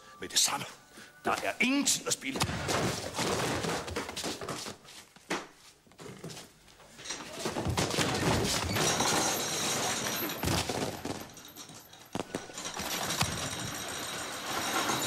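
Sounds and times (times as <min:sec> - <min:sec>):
crashing and banging of a brawl: 0:02.3 - 0:04.6, 0:07.1 - 0:15.0.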